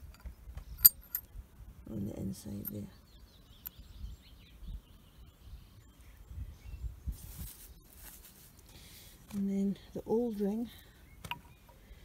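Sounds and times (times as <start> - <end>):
faint bird chirps: 2.4 - 8.0.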